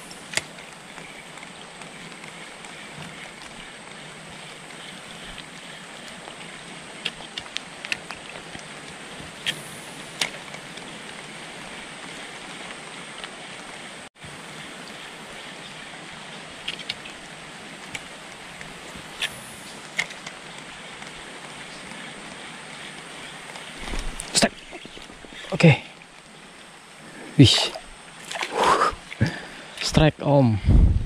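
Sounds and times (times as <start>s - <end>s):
river water flowing: 0.0s - 29.9s.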